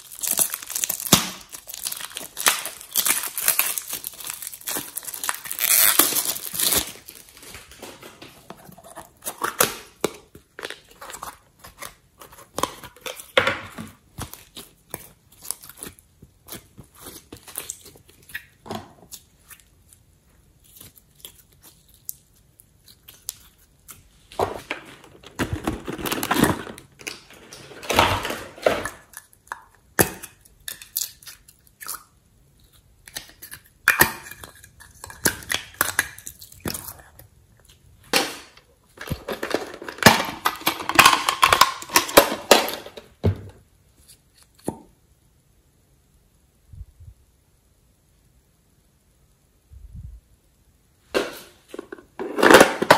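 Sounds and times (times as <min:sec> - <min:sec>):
slime squelching and crackling: 0:00.0 - 0:07.9, 0:08.8 - 0:24.4.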